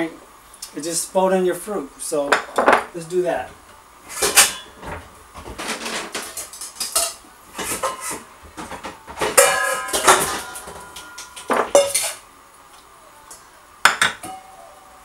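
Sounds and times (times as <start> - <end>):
dishes and cutlery clattering: 4.2 - 12.2
kitchenware ringing: 9.2 - 12.2, 13.9 - 14.7.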